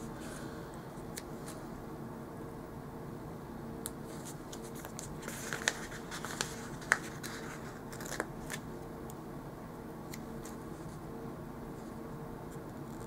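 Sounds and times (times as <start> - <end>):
paper rustling and crinkling: 4.1 - 8.7.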